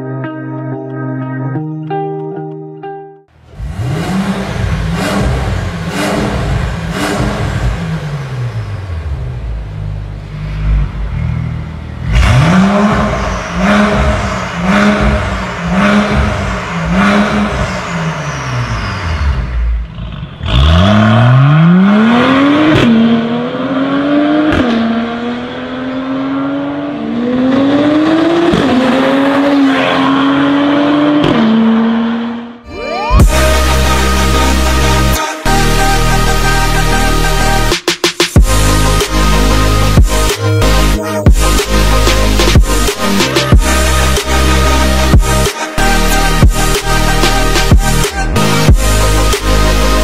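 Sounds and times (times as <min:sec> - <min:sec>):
car accelerating with upshifts: 0:03.4 - 0:32.6
car engine revving: 0:03.4 - 0:32.6, 0:33.2 - 0:50.0.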